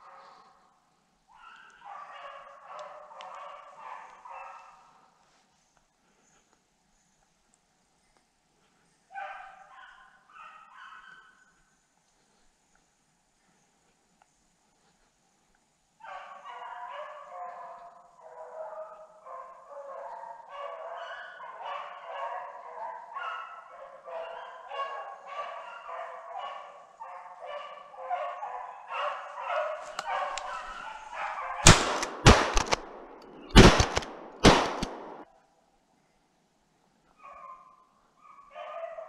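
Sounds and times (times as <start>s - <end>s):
hunting dogs baying: 18.6s - 35.2s
shotgun shots: 31.6s - 35.2s.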